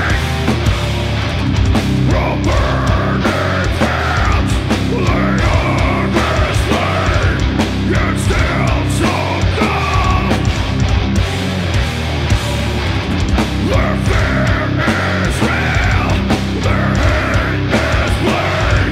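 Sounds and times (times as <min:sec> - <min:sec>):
bass guitar: 0:00.0 - 0:18.9
distorted electric guitars: 0:00.0 - 0:18.9
drums: 0:00.0 - 0:18.9
person singing: 0:02.1 - 0:10.5, 0:13.6 - 0:18.9.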